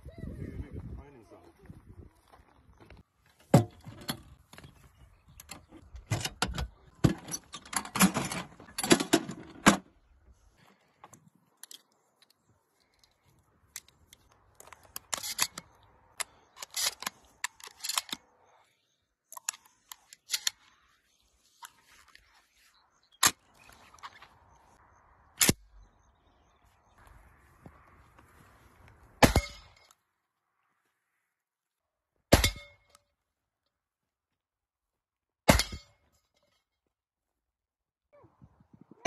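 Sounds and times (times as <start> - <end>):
shotgun shells clicking and rattling: 5.4 - 9.8, 11.5 - 18.6, 19.3 - 20.9.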